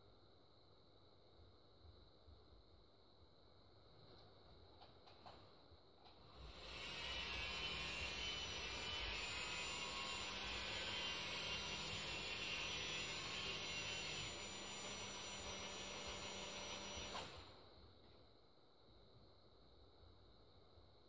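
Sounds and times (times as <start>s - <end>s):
small electric motor whirring: 6.4s - 17.5s.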